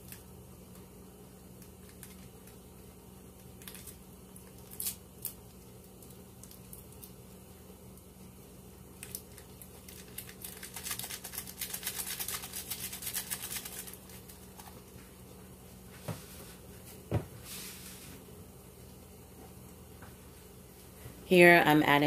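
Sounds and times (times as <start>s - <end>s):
foil wrapper crinkling: 3.4s - 7.2s, 9.0s - 15.0s.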